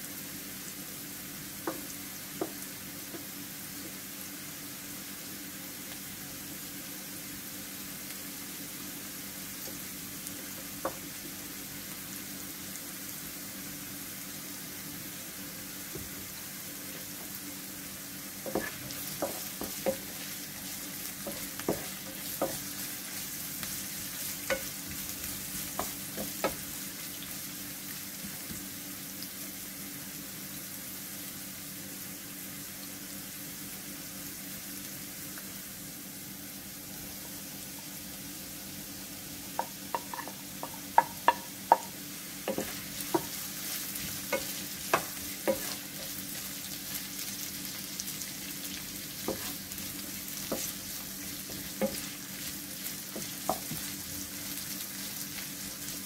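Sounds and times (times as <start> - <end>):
vegetables sizzling in oil: 0.0 - 56.0
wooden spatula knocking on pan: 1.6 - 3.3, 10.8 - 11.1, 18.5 - 20.3, 21.2 - 22.7, 24.4 - 25.0, 25.7 - 26.7, 39.5 - 43.4, 44.0 - 45.8, 49.3 - 49.5, 51.5 - 52.1, 53.1 - 53.9.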